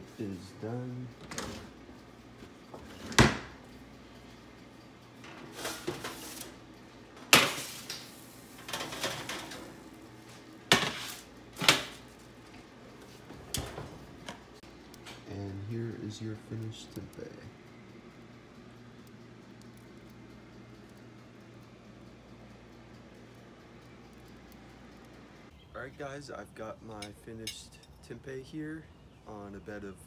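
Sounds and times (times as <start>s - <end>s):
oven door shutting: 2.8s - 3.6s
metal baking sheets clanking: 8.6s - 9.7s, 10.7s - 12.0s.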